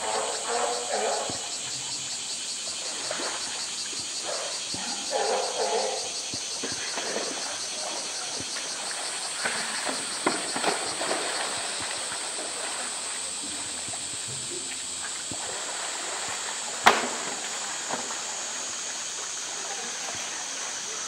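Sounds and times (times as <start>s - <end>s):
cicadas droning: 0.0s - 21.0s
bear splashing in water: 2.8s - 21.0s.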